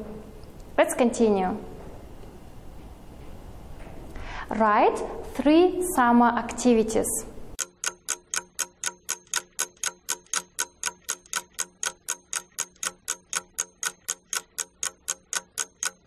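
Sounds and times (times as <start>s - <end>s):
clock ticking: 7.6s - 16.0s.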